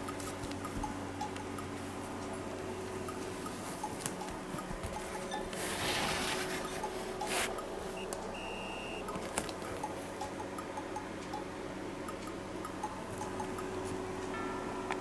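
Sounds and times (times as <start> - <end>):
handling rustle: 3.6 - 7.6
short high beep: 8.4 - 9.0
plinky background music: 9.8 - 15.0.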